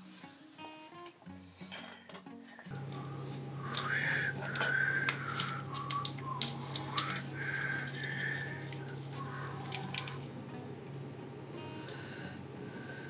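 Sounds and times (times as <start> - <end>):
tape crackling clicks: 2.2 - 10.6
tape pulled off roll: 3.7 - 10.3.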